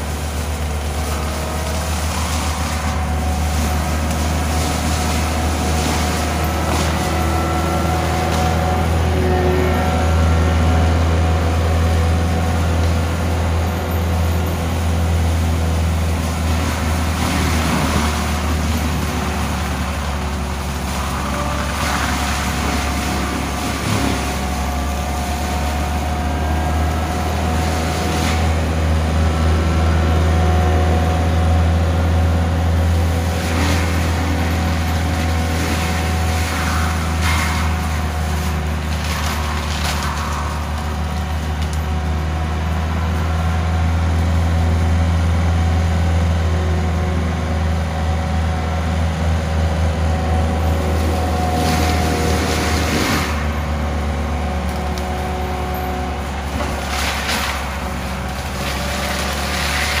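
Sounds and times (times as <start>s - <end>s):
mulcher drum grinding brush: 0.0s - 31.5s, 50.5s - 60.0s
diesel engine running under load: 0.0s - 60.0s.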